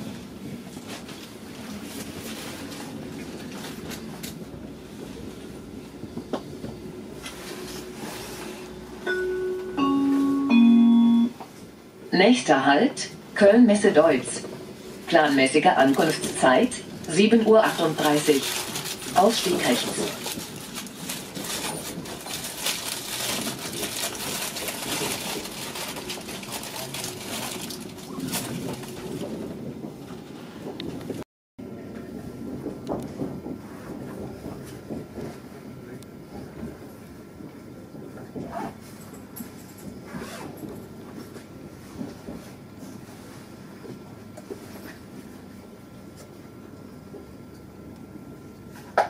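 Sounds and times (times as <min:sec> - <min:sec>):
train rolling noise: 0:00.0 - 0:49.0
announcement chime falling tones: 0:09.0 - 0:11.4.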